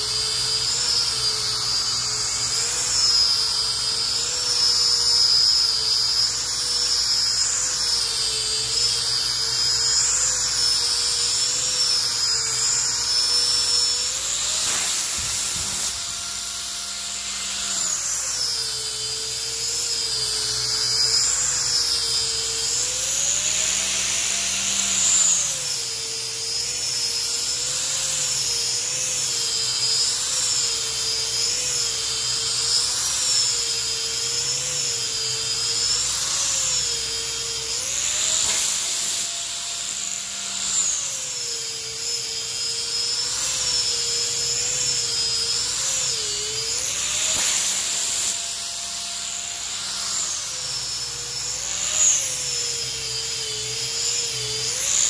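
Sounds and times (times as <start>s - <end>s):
rotary sander whining on wood: 0.0s - 55.0s.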